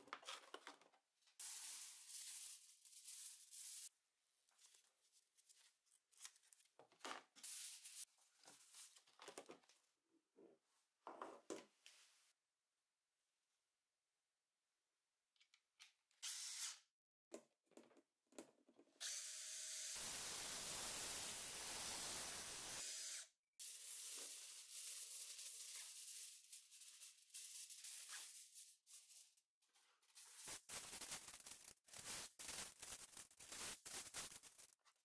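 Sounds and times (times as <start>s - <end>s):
drill boring through plastic: 16.2s - 16.8s, 19.0s - 23.3s
aluminium foil crinkling: 30.1s - 35.0s.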